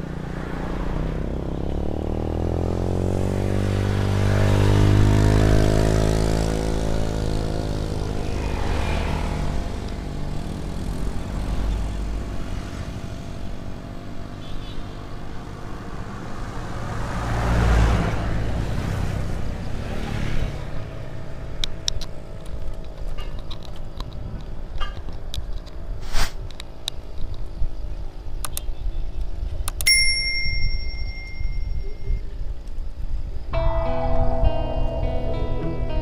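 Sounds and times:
vehicle passing: 0:00.0 - 0:22.5
road and wind noise: 0:00.0 - 0:36.0
sharp clicks: 0:28.4 - 0:28.7
bicycle bell ding: 0:29.8 - 0:32.3.

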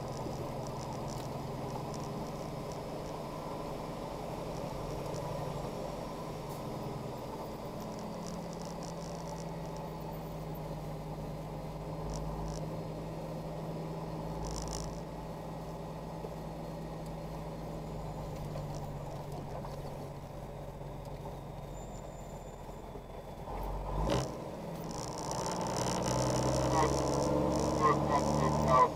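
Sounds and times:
faint ticks and rattles: 0:00.0 - 0:03.2, 0:07.7 - 0:09.9, 0:14.3 - 0:15.1, 0:24.2 - 0:28.9
truck engine and road drone: 0:00.0 - 0:28.9.

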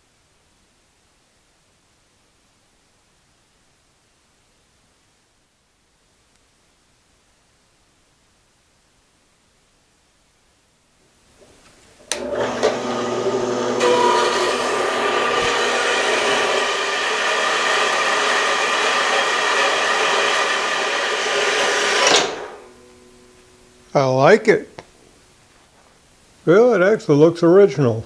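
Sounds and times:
bandsaw cutting metal: 0:12.1 - 0:23.0.

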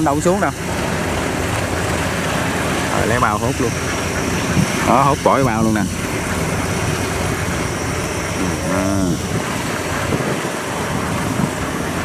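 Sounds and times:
diesel engine running: 0:00.0 - 0:12.0
man calling out: 0:08.4 - 0:09.4.

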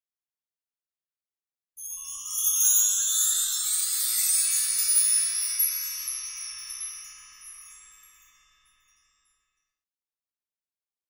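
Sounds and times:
high bell-like chimes ringing: 0:01.8 - 0:09.6.

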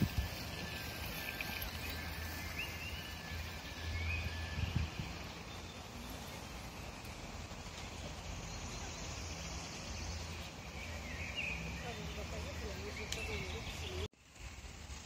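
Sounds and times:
wind rumble on microphone: 0:00.0 - 0:00.8, 0:04.4 - 0:05.4
high bird chirps: 0:00.0 - 0:06.9.

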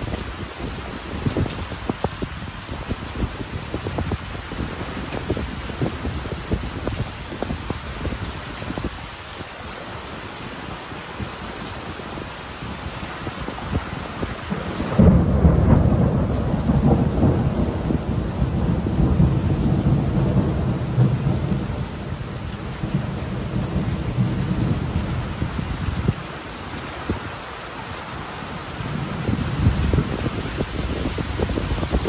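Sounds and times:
heavy rain falling: 0:00.0 - 0:32.0
thunder rumbling: 0:11.0 - 0:27.4, 0:28.3 - 0:32.0.

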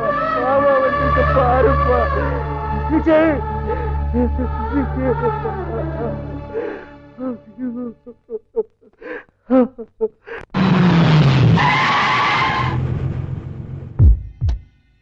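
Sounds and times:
person sobbing: 0:00.7 - 0:10.6
tyres screeching: 0:10.5 - 0:12.8
squealing whine: 0:10.6 - 0:13.9.

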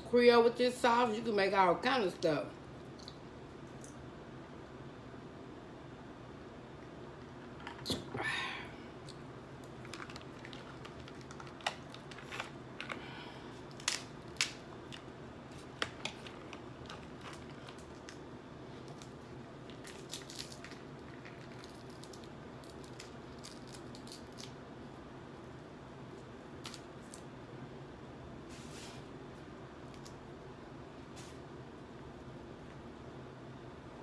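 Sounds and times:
low room hum: 0:00.0 - 0:34.0
crab shells cracking: 0:09.0 - 0:24.6.

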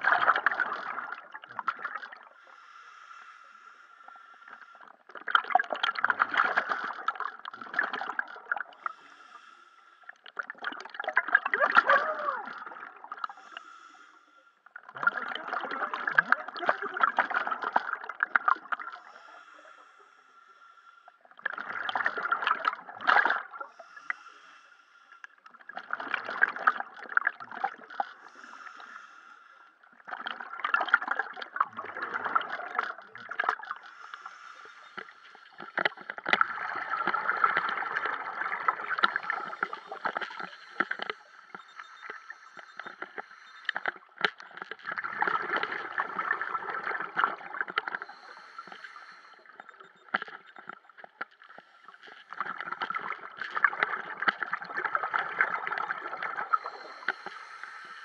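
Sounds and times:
diver's bubbles gurgling underwater: 0:00.0 - 0:02.3, 0:05.1 - 0:08.8, 0:10.3 - 0:13.4, 0:14.8 - 0:19.0, 0:21.4 - 0:23.6, 0:25.5 - 0:28.1, 0:30.0 - 0:33.9, 0:35.7 - 0:40.4, 0:43.8 - 0:48.3, 0:52.3 - 0:57.3.

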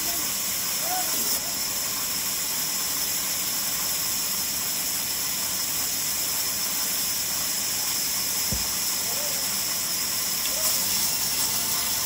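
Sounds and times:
band saw running: 0:04.0 - 0:12.0.

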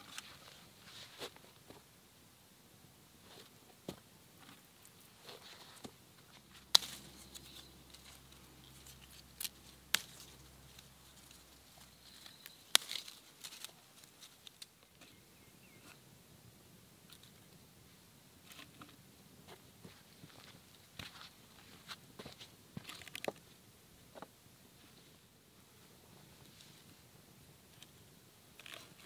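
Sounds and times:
faint leaf rustling: 0:00.0 - 0:01.8, 0:04.4 - 0:16.0
leaf stems snapping: 0:06.6 - 0:11.4, 0:12.0 - 0:14.7.

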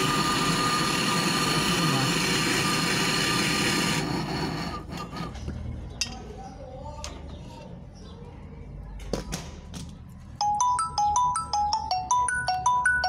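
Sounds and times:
torch flame hissing: 0:00.0 - 0:05.2.

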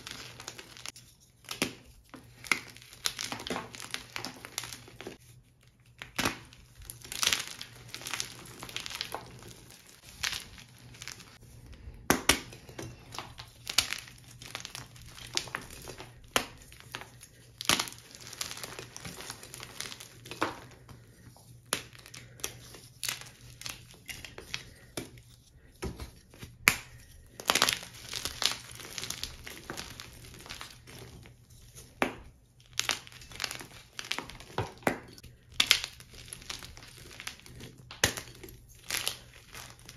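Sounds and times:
sharp chalk cracks: 0:00.0 - 0:05.2, 0:31.8 - 0:39.9.

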